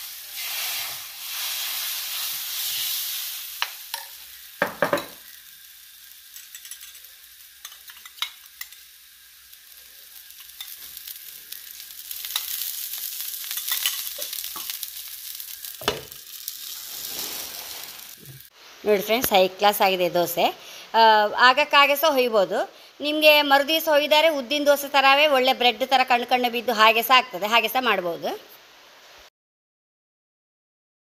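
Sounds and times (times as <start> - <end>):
batter sizzling on hot pan: 0.0 - 20.8
utensils knocking on pan: 3.6 - 5.2.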